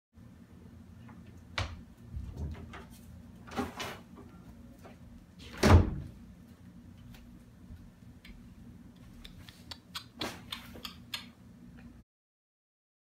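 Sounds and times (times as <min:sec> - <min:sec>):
wooden door closing: 0:05.6 - 0:06.1.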